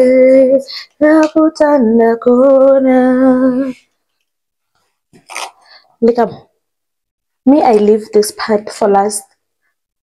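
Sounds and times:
woman singing wordless notes: 0.0 - 3.8.

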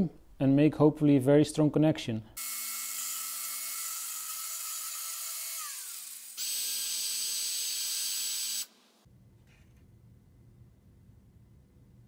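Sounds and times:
cordless drill whining: 2.4 - 8.7
power tool whining: 2.4 - 8.7.

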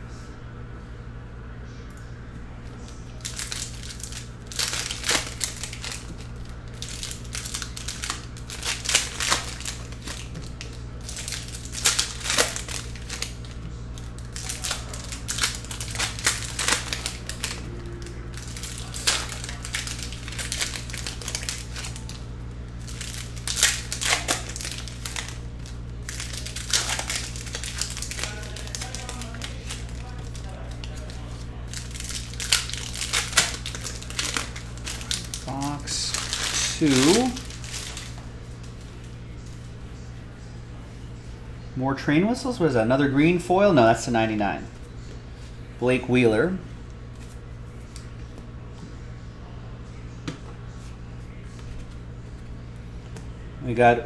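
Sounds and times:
steady low hum: 0.0 - 54.0
foil wrappers crinkling: 2.6 - 39.8.

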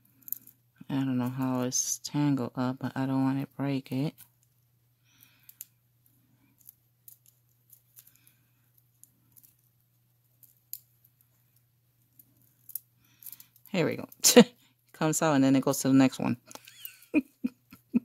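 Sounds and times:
beads and chain clicking: 0.0 - 0.6, 6.4 - 14.2
faint low hum: 0.0 - 18.0.

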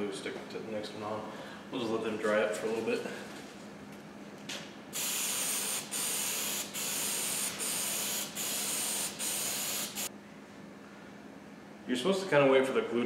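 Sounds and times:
aerosol spray can hissing: 5.0 - 10.1.

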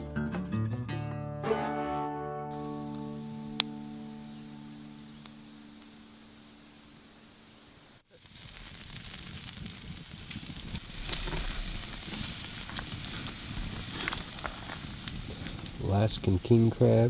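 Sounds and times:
sharp fire pops: 8.1 - 17.0
steaks sizzling on a grill: 8.1 - 17.0.

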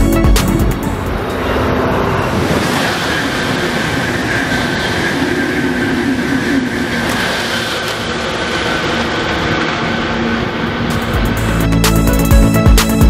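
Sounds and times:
background music: 0.0 - 2.6, 10.9 - 13.0
high-pitched train whine: 0.0 - 13.0
train rushing past: 0.0 - 13.0.

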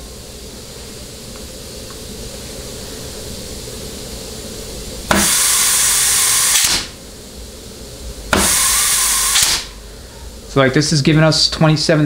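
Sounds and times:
low steady hum: 0.0 - 12.0
compressed air hissing: 2.2 - 7.1, 8.3 - 10.5.

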